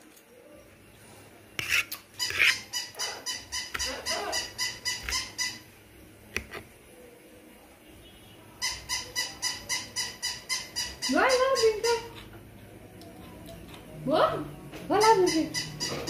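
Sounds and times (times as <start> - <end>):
toy dog cries: 2.2 - 5.6.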